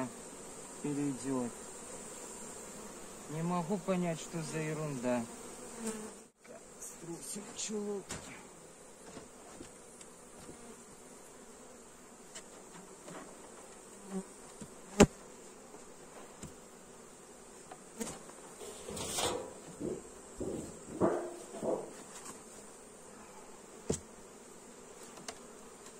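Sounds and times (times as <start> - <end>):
bees buzzing: 0.0 - 25.9
knocks and rustles from hive: 7.6 - 10.8, 12.2 - 16.7, 17.6 - 22.6, 23.8 - 24.2, 24.9 - 25.9.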